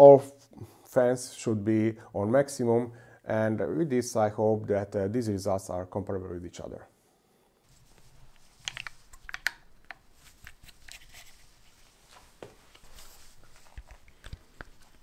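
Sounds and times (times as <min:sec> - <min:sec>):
plastic clicks and rubbing: 0:08.3 - 0:11.4, 0:13.6 - 0:15.0.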